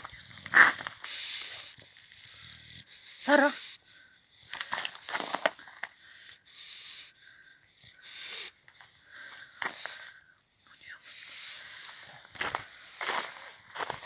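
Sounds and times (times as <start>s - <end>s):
crunching on snow: 0.0s - 2.1s, 4.5s - 5.9s, 11.5s - 14.0s
dog snuffling breaths: 0.0s - 10.2s, 11.0s - 14.0s.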